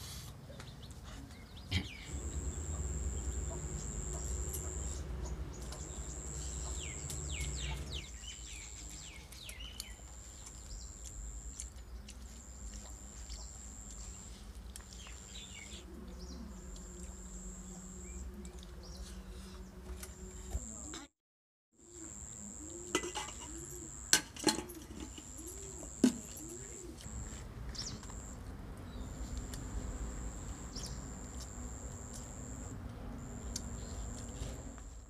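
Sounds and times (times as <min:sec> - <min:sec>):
birds chirping: 0:00.8 - 0:14.3, 0:25.2 - 0:34.2
low rumble: 0:02.1 - 0:08.1
high insect buzz: 0:02.1 - 0:08.6, 0:10.8 - 0:11.7, 0:16.8 - 0:18.2, 0:20.5 - 0:21.0, 0:21.8 - 0:24.3, 0:29.2 - 0:34.8.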